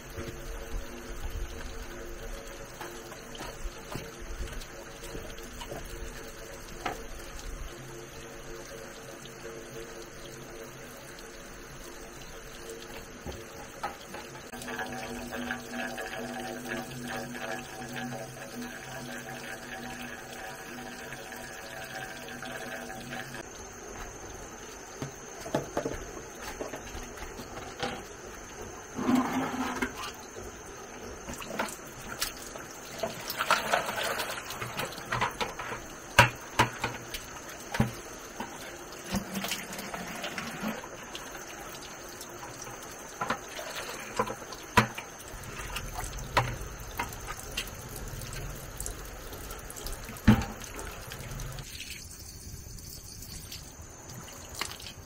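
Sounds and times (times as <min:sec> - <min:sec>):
water splashing into plastic basins: 0:22.0 - 0:52.1, 0:53.4 - 0:55.0
plastic bowls knocking and rattling: 0:25.0 - 0:28.0.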